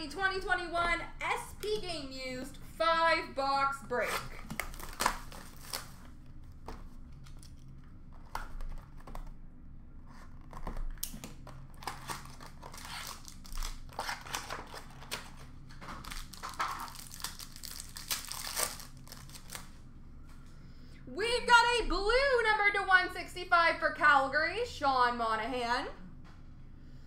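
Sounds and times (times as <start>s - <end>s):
wrappers crinkling and tearing: 4.0s - 9.3s, 10.2s - 19.8s.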